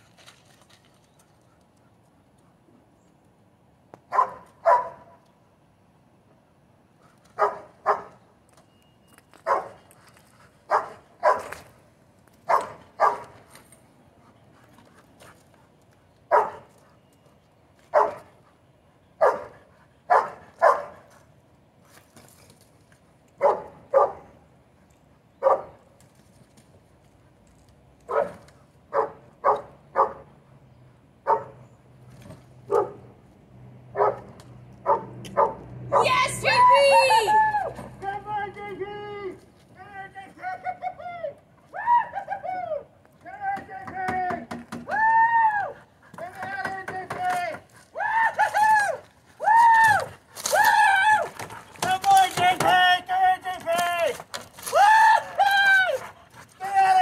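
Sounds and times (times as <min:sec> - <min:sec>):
dog barking sharply: 0:04.1 - 0:05.0, 0:10.7 - 0:11.5, 0:12.5 - 0:13.3, 0:16.3 - 0:16.6, 0:20.1 - 0:21.0, 0:23.4 - 0:24.2.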